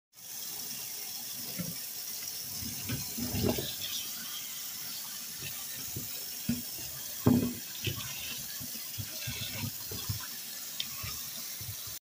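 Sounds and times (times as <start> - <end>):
tap running into steel sink: 5.4 - 11.9.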